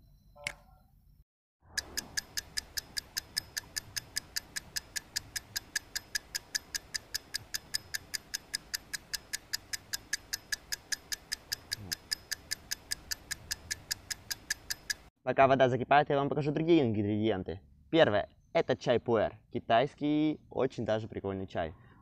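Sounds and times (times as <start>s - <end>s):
clock ticking: 1.7s - 15.1s.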